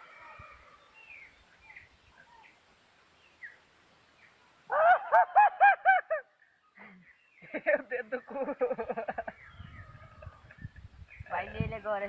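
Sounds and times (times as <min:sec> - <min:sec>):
faint bird chirps: 0:09.1 - 0:11.5.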